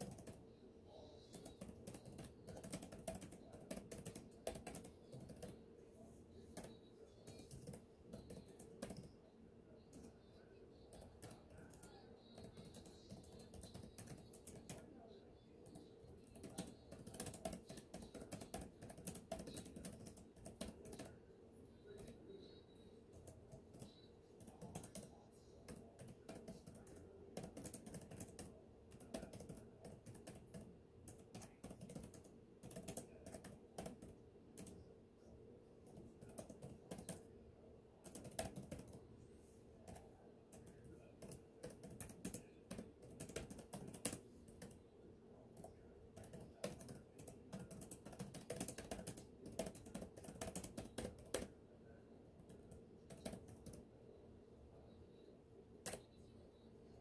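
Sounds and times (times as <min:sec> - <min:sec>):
typing on computer keyboard: 0:00.0 - 0:00.4, 0:01.2 - 0:05.6, 0:06.4 - 0:09.2, 0:10.9 - 0:15.0, 0:15.6 - 0:21.2, 0:21.9 - 0:22.2, 0:23.1 - 0:34.9, 0:35.8 - 0:37.3, 0:38.0 - 0:39.0, 0:39.8 - 0:44.8, 0:45.6 - 0:51.5, 0:52.4 - 0:53.8, 0:55.8 - 0:56.1.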